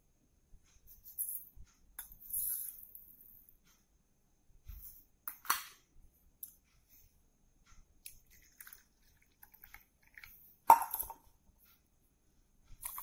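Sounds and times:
steel tumblers clinking: 10.7 - 11.2.

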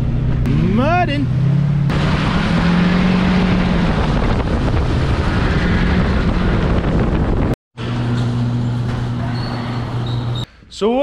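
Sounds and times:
truck engine drone: 0.0 - 10.4
wind noise: 1.9 - 7.6.

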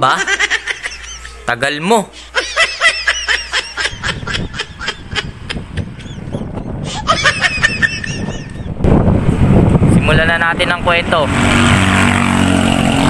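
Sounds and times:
person laughing: 0.1 - 1.5, 2.3 - 8.8
wind and road noise: 2.3 - 13.0.

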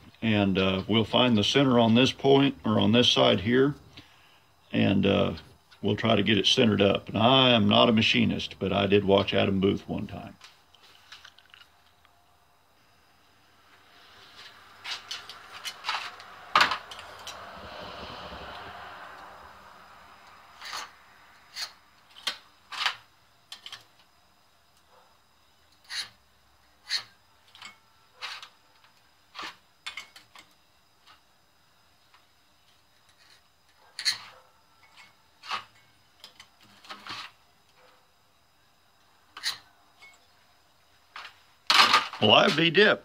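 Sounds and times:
scribe scratching on metal: 20.6 - 21.8, 25.8 - 26.2, 26.8 - 27.2.

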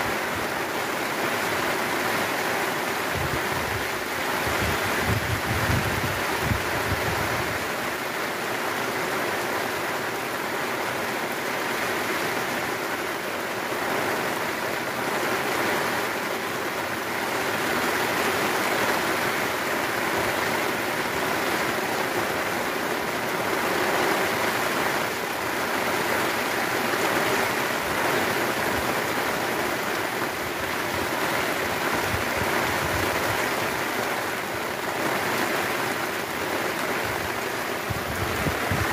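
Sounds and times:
heavy rain on water: 0.0 - 38.9.

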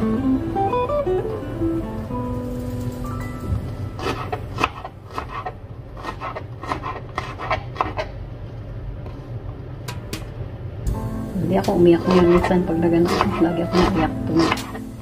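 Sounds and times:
knife chopping on cutting board: 4.0 - 8.1, 12.0 - 14.9.

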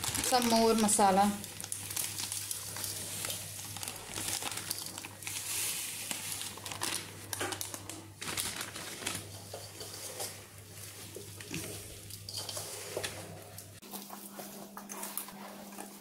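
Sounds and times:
plastic packet crinkling: 0.0 - 9.7.

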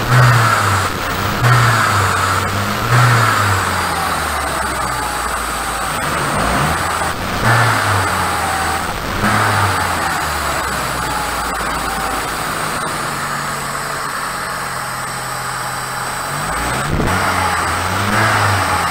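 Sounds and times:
car engine idling and revving: 0.0 - 18.9.

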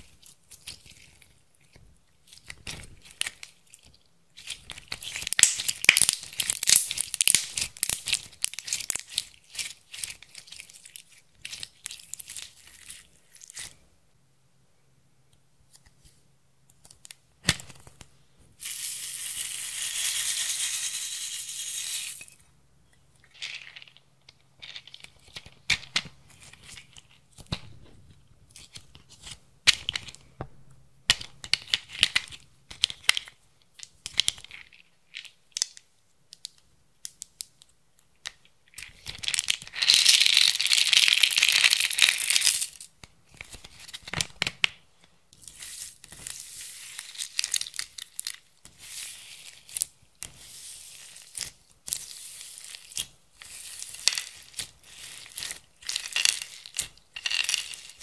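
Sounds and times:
slime crackling and squishing: 0.0 - 13.8.

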